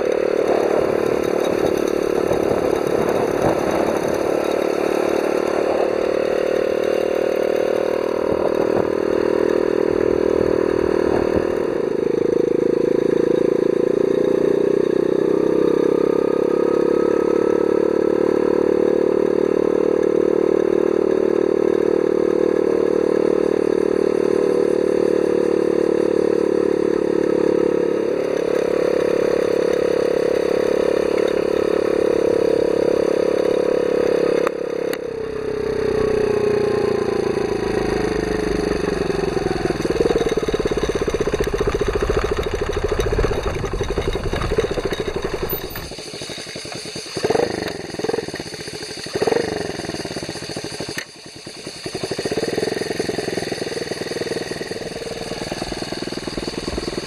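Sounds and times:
small minibike engine running: 0:00.0 - 0:57.0
rattling: 0:38.4 - 0:46.8.

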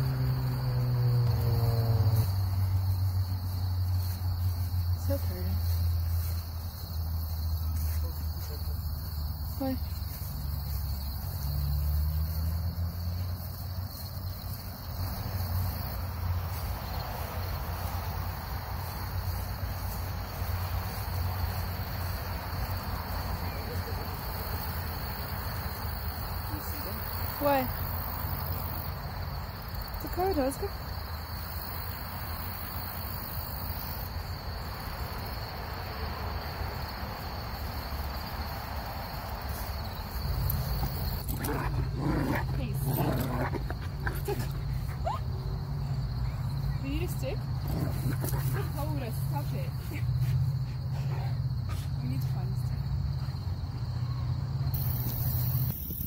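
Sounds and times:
crickets trilling: 0:00.0 - 0:56.0
high-pitched insect chorus: 0:00.0 - 0:56.0
constant low rumble: 0:39.2 - 0:56.0.

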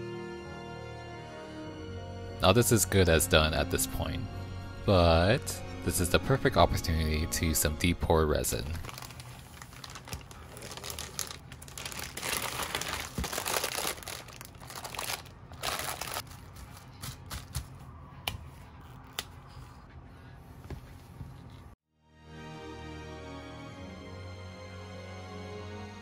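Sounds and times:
plastic bag crinkling: 0:08.8 - 0:16.6.

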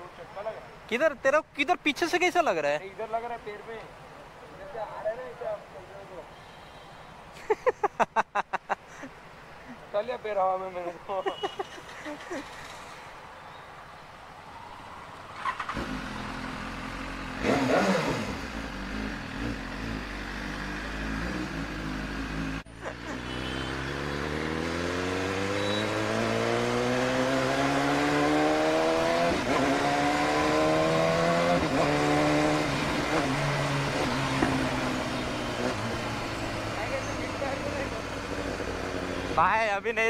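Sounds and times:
wind and road noise: 0:00.0 - 0:40.0
motorcycle engine revving: 0:15.4 - 0:39.4.

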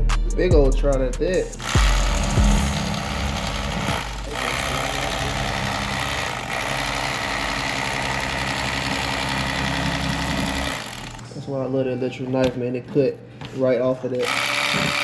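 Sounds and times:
electric knife sawing fish: 0:01.6 - 0:11.3, 0:14.2 - 0:15.0.

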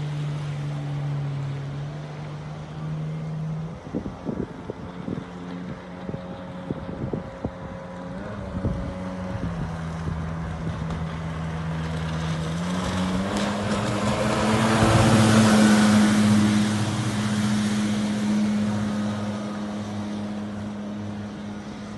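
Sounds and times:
jet boat engine running: 0:00.0 - 0:21.9
water jet and spray rushing: 0:09.0 - 0:21.9.

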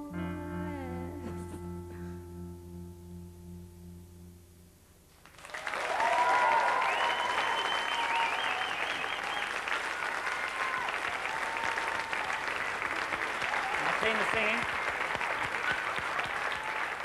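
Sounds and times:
audience applause: 0:05.2 - 0:17.0
high whistles: 0:06.4 - 0:09.7.

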